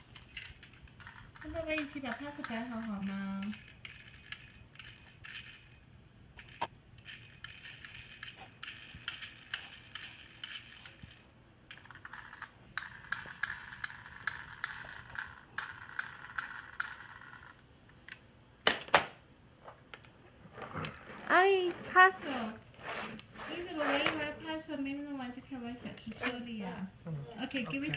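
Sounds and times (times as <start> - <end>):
toy car gears whirring and clicking: 0.1 - 5.7, 6.4 - 17.5.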